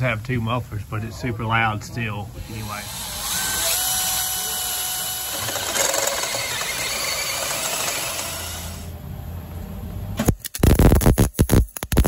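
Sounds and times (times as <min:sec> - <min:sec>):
drill grinding through metal: 0:02.3 - 0:08.9.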